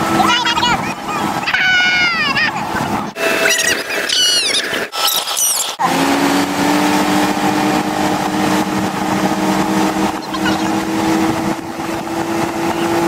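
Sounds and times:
motorboat engine running: 0.0 - 13.0
wake water rushing: 0.0 - 13.0
wind: 0.0 - 13.0
high chirps: 3.2 - 5.8.

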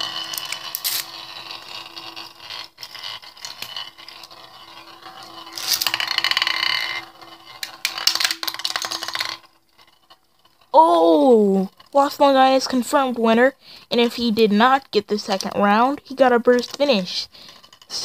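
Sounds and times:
spinning tops clicking together: 0.0 - 9.6
spinning tops whirring and scraping: 0.0 - 18.0.

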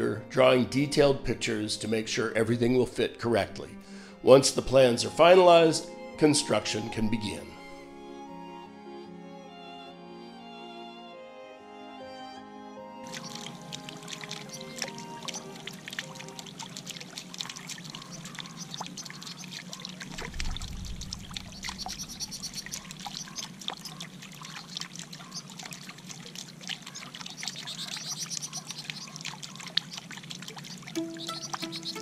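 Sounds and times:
finches chirping: 13.0 - 32.0
fountain water trickling and splashing: 13.0 - 32.0
low rumble: 20.1 - 23.2.

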